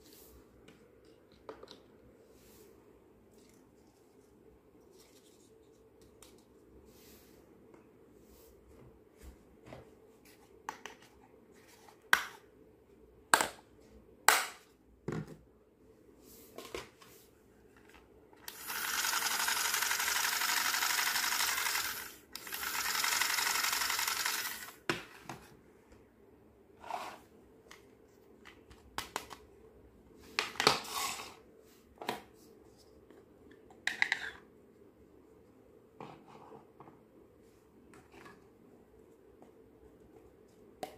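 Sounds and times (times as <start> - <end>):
toy sewing machine whirring: 18.4 - 24.8.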